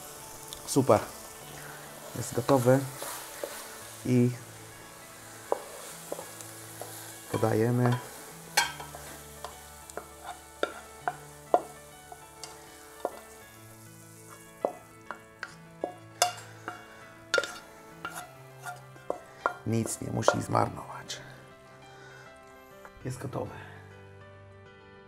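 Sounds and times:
faint sizzle: 0:00.0 - 0:23.8
soft background music: 0:00.0 - 0:25.0
spatula scraping a frying pan: 0:01.5 - 0:04.0, 0:05.2 - 0:13.4, 0:14.1 - 0:20.5.

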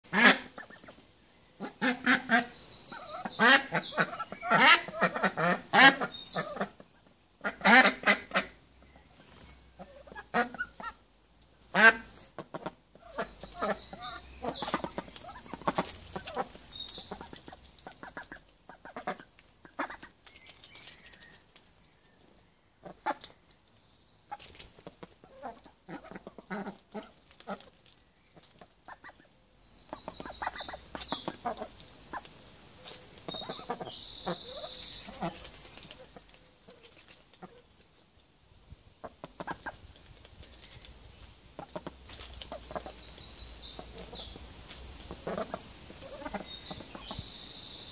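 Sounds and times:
ducks quacking: 0:00.1 - 0:01.0, 0:01.6 - 0:08.6, 0:11.7 - 0:20.1, 0:45.1 - 0:47.2
small bird chirping: 0:02.3 - 0:07.3, 0:13.0 - 0:18.4, 0:20.2 - 0:24.7, 0:28.1 - 0:37.6, 0:42.2 - 0:47.9
beaks pecking lettuce: 0:12.0 - 0:22.1, 0:22.8 - 0:29.3, 0:29.9 - 0:38.0, 0:39.2 - 0:47.2.

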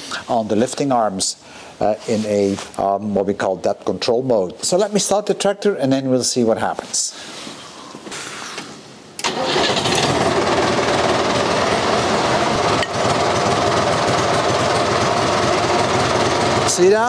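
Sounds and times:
tractor diesel engine starting: 0:09.2 - 0:16.8.

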